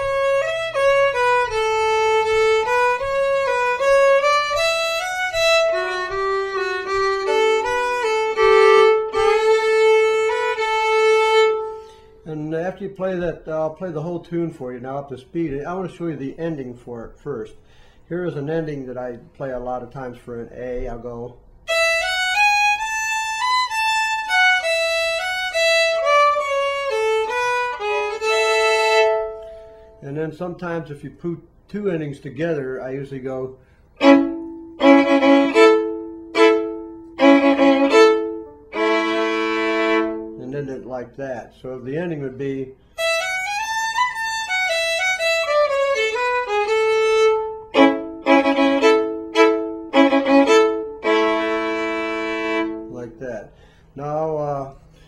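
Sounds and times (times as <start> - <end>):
solo fiddle playing: 0.0 - 14.8, 21.6 - 30.3, 32.7 - 41.1, 41.9 - 53.8.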